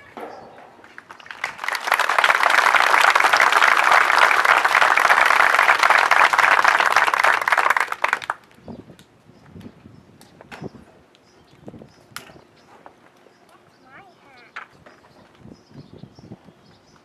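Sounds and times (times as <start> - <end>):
audience applauding: 1.0 - 8.4.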